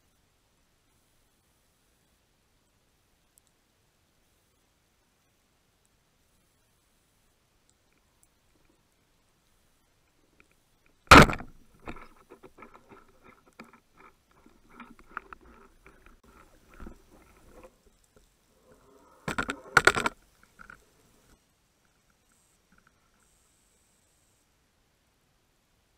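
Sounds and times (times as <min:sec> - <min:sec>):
faint clicks and rattles of gear: 0:07.6 - 0:23.4
speargun shot crack: 0:11.1 - 0:11.6.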